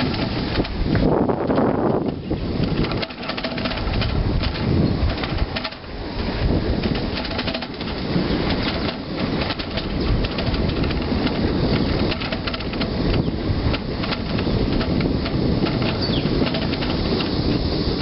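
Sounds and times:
bicycle rolling on concrete: 0.0s - 18.0s
bike rattling and clicking: 0.0s - 18.0s
wind on microphone: 0.0s - 18.0s.

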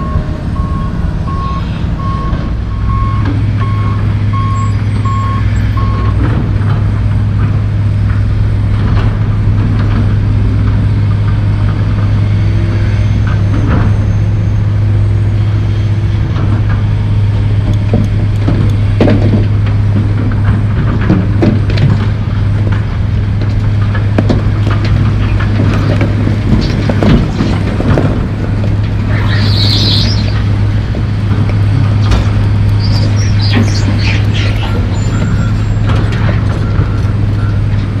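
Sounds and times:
diesel engine running: 0.0s - 38.0s
concrete chunks and dirt clattering: 17.7s - 38.0s
brief high squeal: 29.1s - 30.4s.

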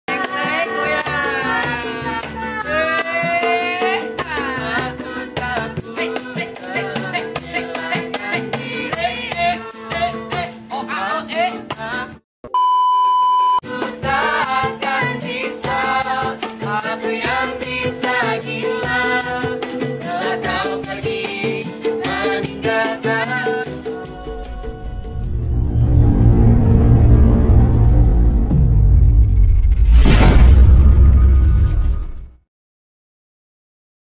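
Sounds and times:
people singing along: 0.1s - 12.1s, 13.7s - 27.5s
steady electronic beep: 12.5s - 13.6s, 24.1s - 31.6s.

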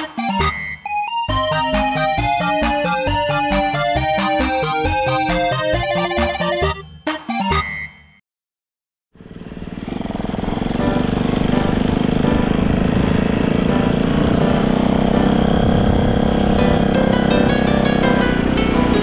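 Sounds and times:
music with ticking beat: 0.0s - 8.1s, 16.6s - 19.0s
motorcycle engine running: 9.2s - 19.0s.

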